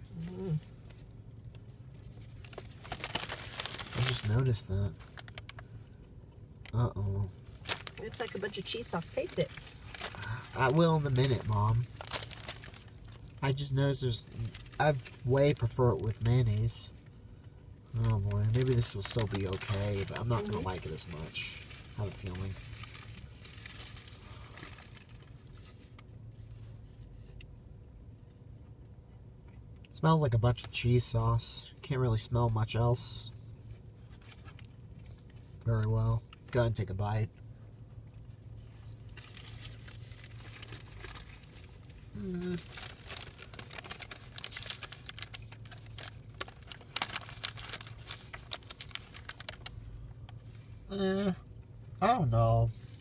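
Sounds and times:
paper wrapper crinkling: 0.0 - 5.7, 7.4 - 16.8, 18.0 - 26.0, 38.7 - 50.4
low steady hum: 0.0 - 53.0.

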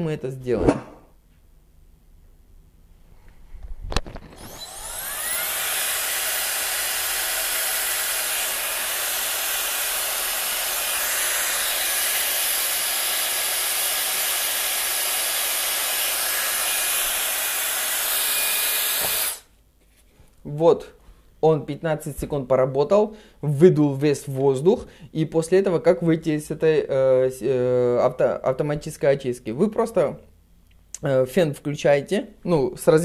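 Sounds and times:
hair dryer motor whining: 4.2 - 19.5.

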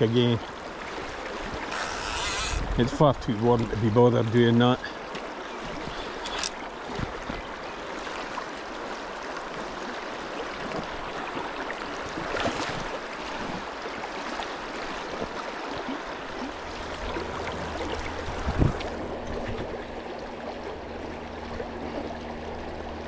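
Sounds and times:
water swish: 0.0 - 23.0
river water rushing: 4.7 - 23.0.

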